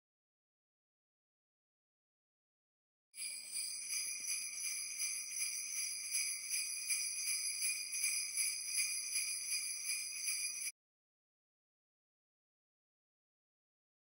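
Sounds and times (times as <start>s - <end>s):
jingle bells shaken: 3.2s - 10.7s.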